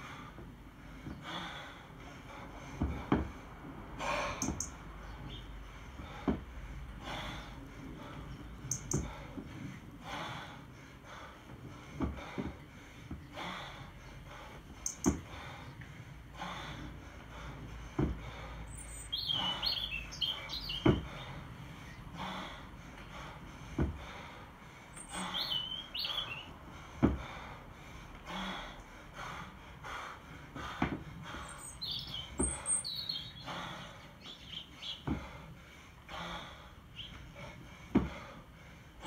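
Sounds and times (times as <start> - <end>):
kettlebell dull thuds: 2.7 - 3.5, 6.0 - 6.6, 12.0 - 13.4, 14.9 - 15.4, 17.8 - 18.4, 20.8 - 21.2, 23.7 - 24.2, 27.0 - 27.5, 30.6 - 31.2, 35.0 - 35.4, 37.9 - 38.3
birds chirping: 4.1 - 6.3, 7.0 - 11.4, 12.2 - 27.5, 29.9 - 38.4.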